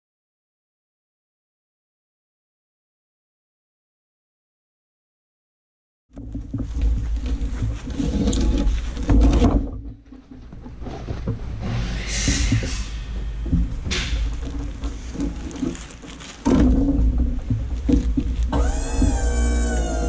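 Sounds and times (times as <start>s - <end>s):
log clunking and rattling: 6.2s - 20.0s
sawmill engine running: 18.5s - 20.0s.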